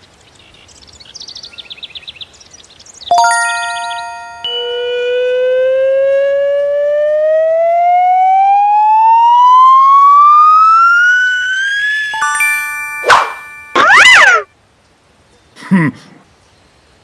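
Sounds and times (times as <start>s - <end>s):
chime note: 3.1s - 5.2s, 12.2s - 14.4s
rising cartoon tone: 3.1s - 5.8s, 9.0s - 14.5s.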